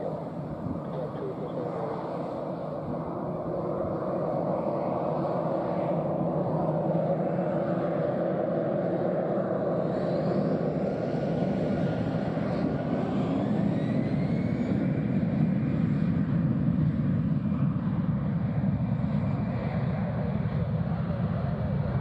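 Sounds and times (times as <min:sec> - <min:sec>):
jet engines spooling up: 0:00.0 - 0:17.2.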